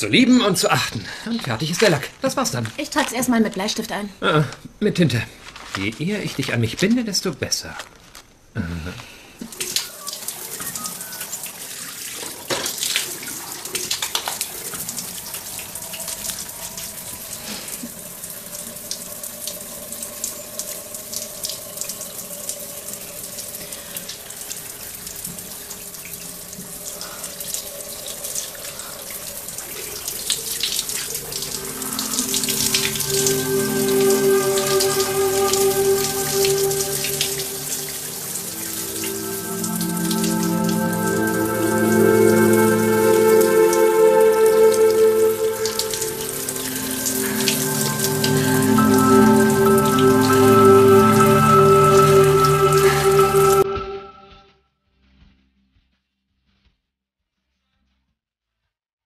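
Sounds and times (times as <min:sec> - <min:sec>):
falling water hissing: 0:09.1 - 0:53.6
soft music with held notes: 0:31.1 - 0:54.4.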